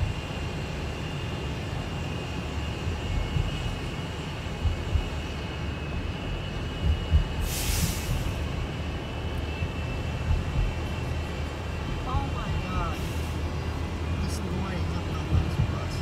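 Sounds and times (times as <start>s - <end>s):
bus engine whine and rumble: 0.0s - 16.0s
hissing burst: 7.3s - 8.5s.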